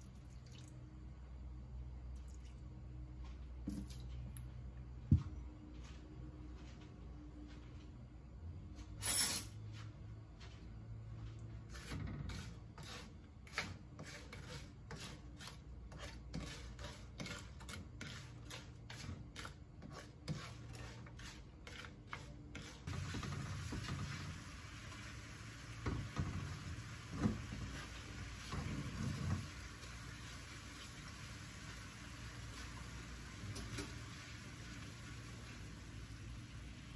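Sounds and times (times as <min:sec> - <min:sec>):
spatula scraping in a wok: 0:08.9 - 0:09.7, 0:11.5 - 0:34.6
sugar syrup sizzling: 0:12.4 - 0:36.9.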